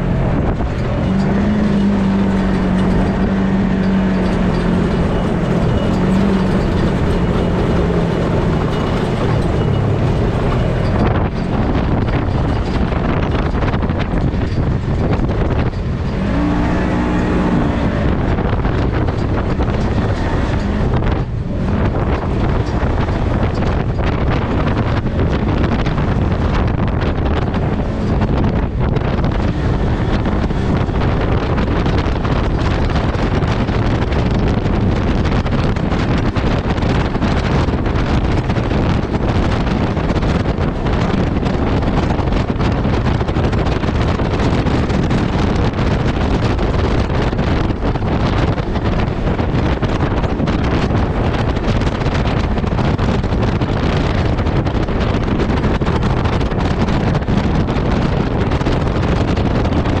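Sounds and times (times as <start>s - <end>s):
off-road vehicle running: 0.0s - 60.0s
wind buffeting microphone: 0.0s - 60.0s.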